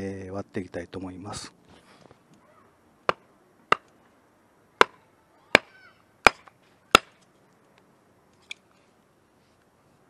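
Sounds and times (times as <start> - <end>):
hatchet chopping into a log: 3.1 - 3.9, 5.6 - 7.2.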